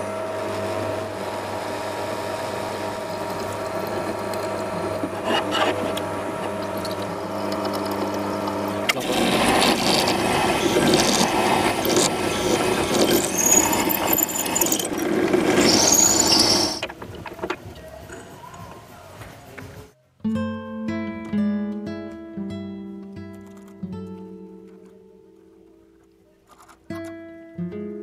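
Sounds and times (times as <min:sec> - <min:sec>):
drill press motor humming: 0:00.0 - 0:17.0
drill bit cutting into metal: 0:03.0 - 0:16.8
high squeals from drill bit: 0:08.9 - 0:16.8.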